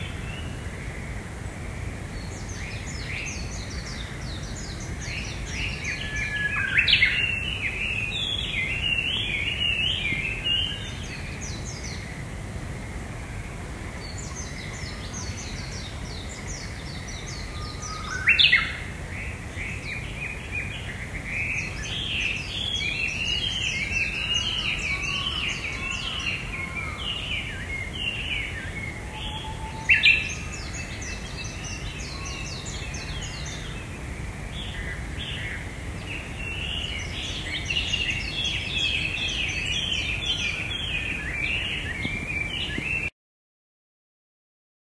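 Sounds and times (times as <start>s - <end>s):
low steady background noise: 0.0s - 43.1s
songbirds singing: 0.0s - 43.1s
sharp rising bird calls: 23.5s - 33.7s.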